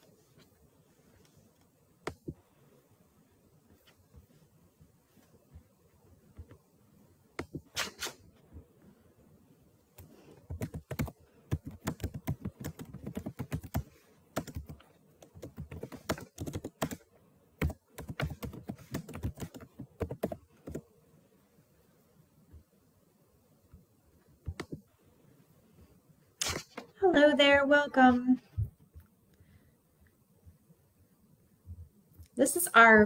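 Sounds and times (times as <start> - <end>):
typing on computer keyboard: 10.5 - 17.0, 17.6 - 20.8.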